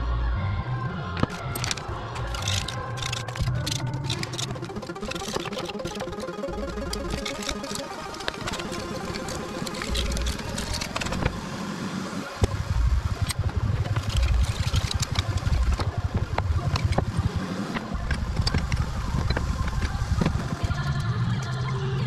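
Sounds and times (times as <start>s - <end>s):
scraper scratching metal: 1.2s - 11.3s.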